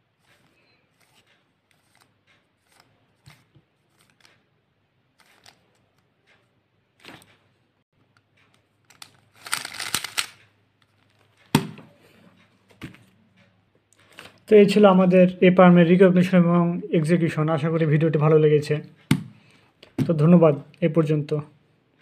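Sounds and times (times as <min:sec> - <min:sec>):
plastic cube turning clicks: 0:08.9 - 0:10.5.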